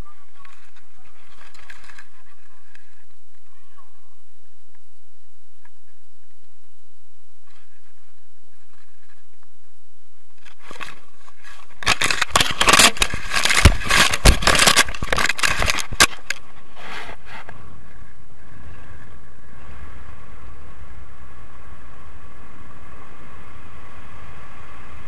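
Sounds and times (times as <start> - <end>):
gusty buffeting and scraping: 7.4 - 25.0.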